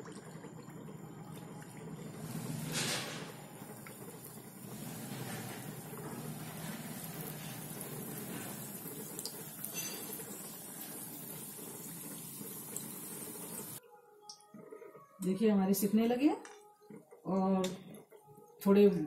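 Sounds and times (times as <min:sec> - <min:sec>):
deep-frying sizzle and bubbling: 0:00.0 - 0:13.8.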